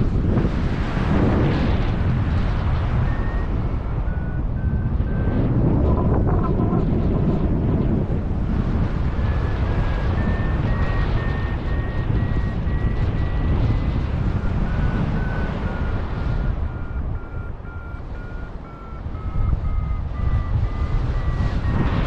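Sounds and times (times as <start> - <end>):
wind across microphone: 0.0 - 22.0
variometer beeping: 2.9 - 6.8, 9.1 - 22.0.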